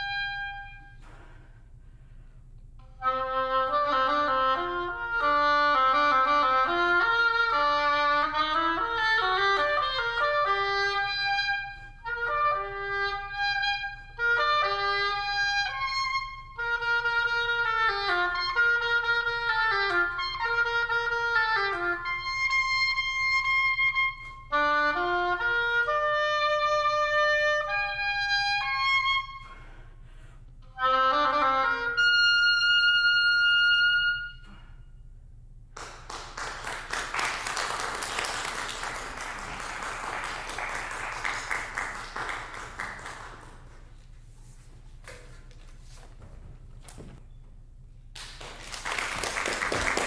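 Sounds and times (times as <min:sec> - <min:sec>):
oboe playing: 0:00.0 - 0:01.5, 0:02.8 - 0:35.1
audience applause: 0:35.8 - 0:43.7, 0:48.2 - 0:50.0.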